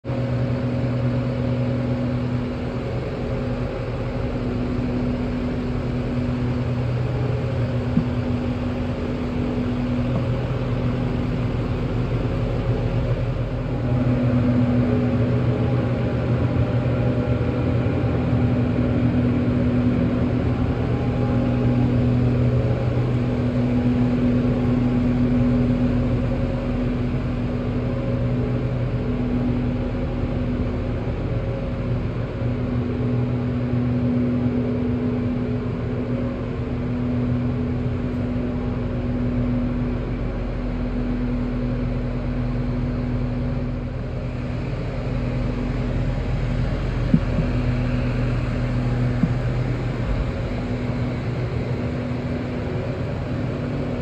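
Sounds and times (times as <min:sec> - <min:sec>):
truck engine idling: 0:40.7 - 0:53.9.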